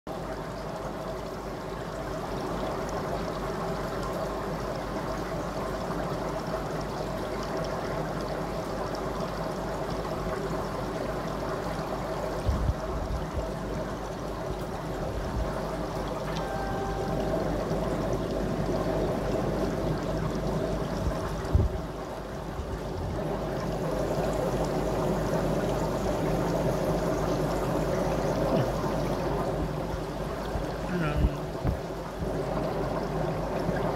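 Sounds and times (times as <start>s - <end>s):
water trickling and pouring: 0.1s - 33.9s
low steady hum: 16.2s - 21.4s.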